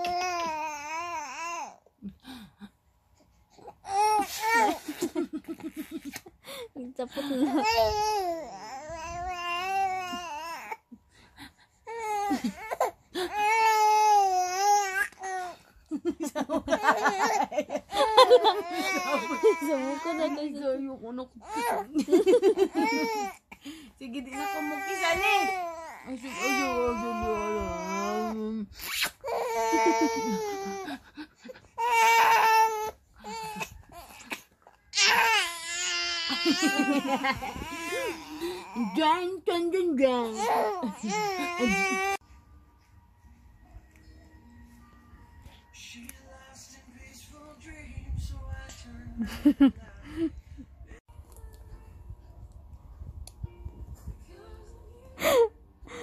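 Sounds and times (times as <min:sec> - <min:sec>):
woman laughing: 0:04.3 - 0:07.9, 0:12.1 - 0:13.5, 0:15.8 - 0:20.1, 0:21.5 - 0:23.4, 0:29.4 - 0:31.6, 0:36.2 - 0:38.9, 0:40.7 - 0:42.2, 0:49.2 - 0:50.6
baby crying: 0:11.9 - 0:15.6, 0:18.0 - 0:20.5, 0:22.6 - 0:23.4, 0:29.2 - 0:31.0, 0:31.8 - 0:39.0, 0:40.3 - 0:42.2.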